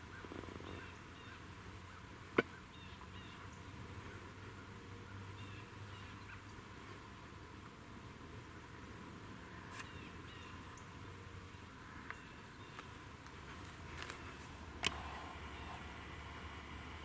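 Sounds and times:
faint bird chirps: 0.0s - 6.6s, 9.5s - 13.0s, 14.1s - 16.1s.

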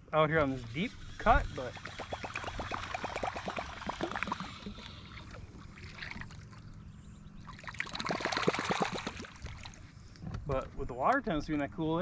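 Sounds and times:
steady low hum: 0.0s - 12.0s
fishing lure splashing water: 1.0s - 6.8s, 7.4s - 9.9s.

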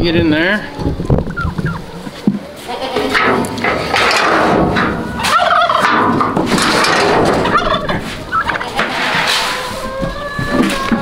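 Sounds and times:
turkey gobbling: 0.7s - 11.0s
metal trailer gate clattering: 2.8s - 9.5s.

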